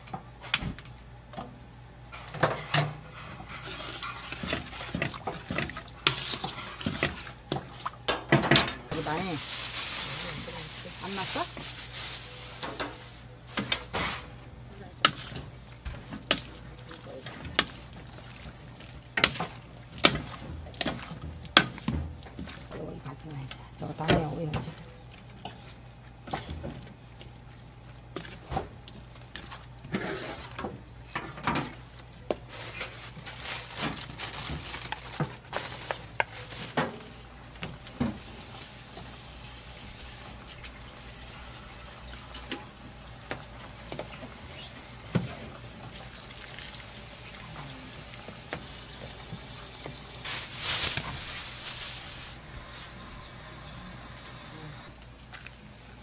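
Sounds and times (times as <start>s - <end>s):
stew bubbling: 37.4s - 50.3s.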